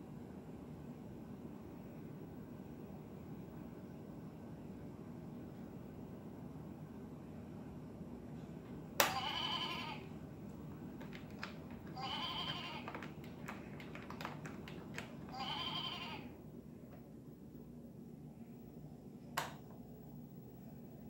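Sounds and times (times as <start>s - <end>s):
toy playing animal bleat: 9.1s - 10.1s, 12.0s - 13.0s, 15.3s - 16.3s.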